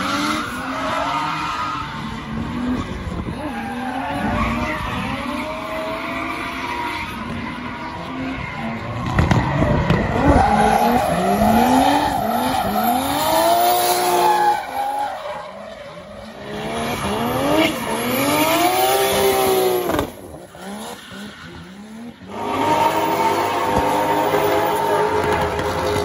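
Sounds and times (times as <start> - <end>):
tyres skidding and squealing: 0.0 - 26.0
car engine revving hard: 8.0 - 14.4, 16.4 - 26.0.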